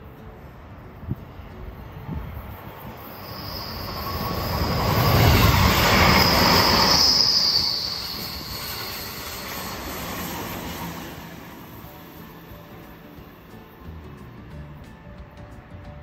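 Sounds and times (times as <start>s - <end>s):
train wheels rumbling on rail: 0.0s - 16.0s
high wheel squeal: 2.8s - 12.0s.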